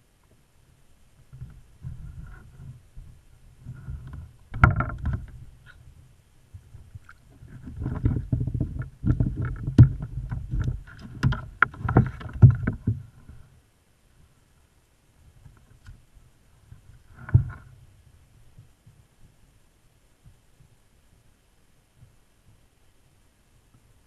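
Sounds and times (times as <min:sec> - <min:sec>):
knocks and bumps in kayak: 0:01.2 - 0:05.8, 0:06.6 - 0:13.4, 0:16.6 - 0:19.4
deep thuds: 0:07.6 - 0:13.1.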